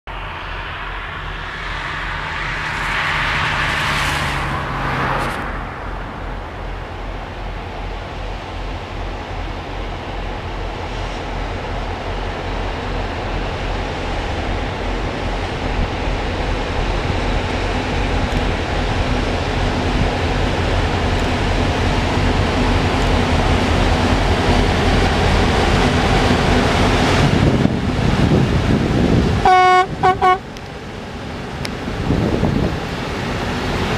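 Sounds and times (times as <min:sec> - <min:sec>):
diesel locomotive engine throb: 0:05.6 - 0:33.9.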